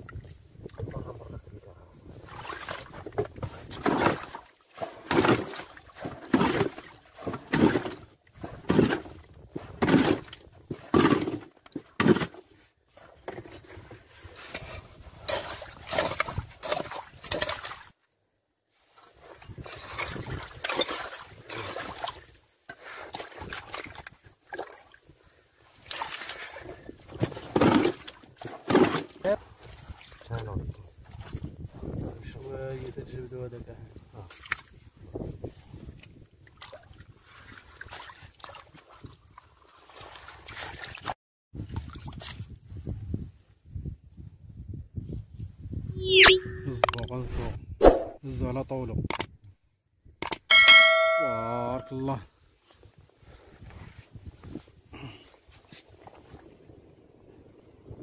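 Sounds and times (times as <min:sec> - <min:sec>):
scraping and sloshing in muddy water: 0:00.0 - 0:33.2, 0:33.8 - 0:43.5, 0:52.4 - 0:58.0.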